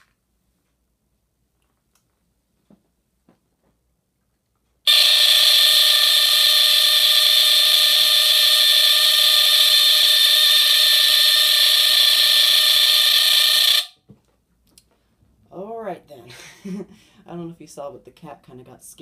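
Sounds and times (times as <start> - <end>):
smoke alarm horn squealing: 4.9 - 14.0.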